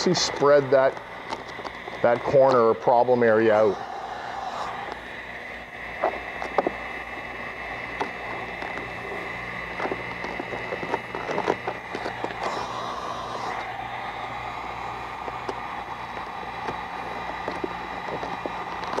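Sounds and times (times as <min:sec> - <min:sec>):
steady background hum: 0:00.0 - 0:19.0
vinyl film crackling and rubbing: 0:00.1 - 0:02.7, 0:06.0 - 0:13.8, 0:14.4 - 0:19.0.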